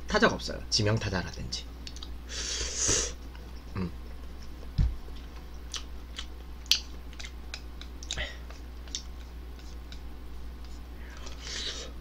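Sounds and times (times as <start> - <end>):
soft mouth clicks: 1.8 - 2.1, 5.7 - 9.2
person chewing noodles: 3.2 - 11.8
chopsticks clicking: 5.7 - 10.1.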